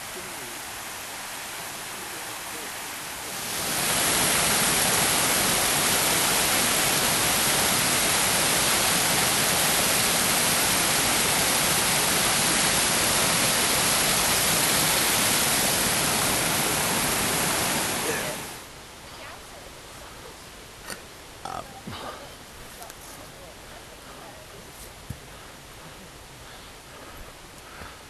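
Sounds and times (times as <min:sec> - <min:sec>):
waterfall rushing: 0:00.0 - 0:18.7.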